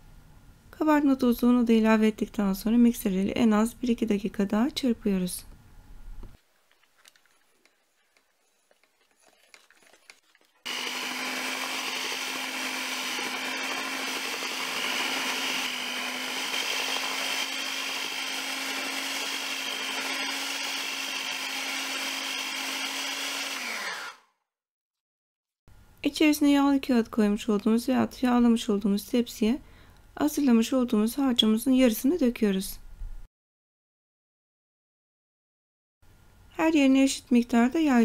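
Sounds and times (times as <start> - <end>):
electric hand mixer whining: 10.6 - 24.3.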